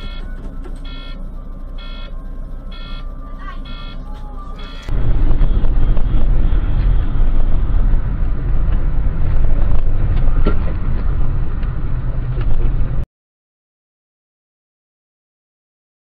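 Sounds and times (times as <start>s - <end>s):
car road and engine rumble: 0.0s - 13.1s.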